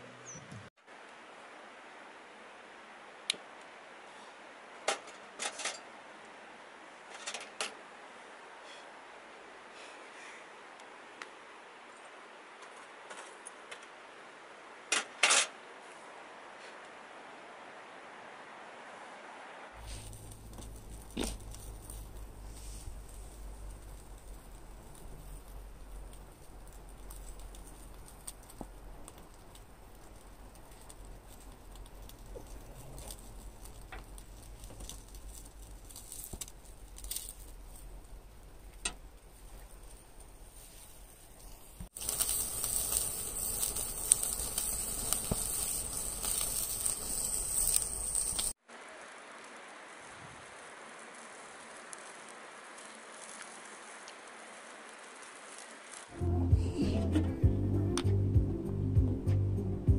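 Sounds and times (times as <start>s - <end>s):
steady faint hiss: 0.0s - 59.9s
meat crackling on a grill: 19.8s - 56.7s
metal tongs clicking on grill: 42.0s - 48.5s.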